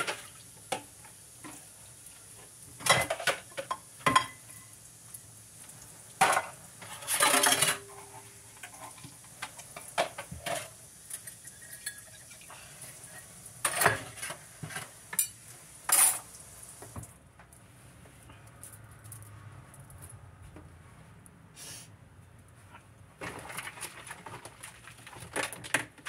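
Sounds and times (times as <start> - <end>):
running tap hiss: 0.0 - 17.1
dishes and cutlery clattering: 2.8 - 4.5, 6.2 - 9.1, 9.8 - 12.4, 13.1 - 16.3.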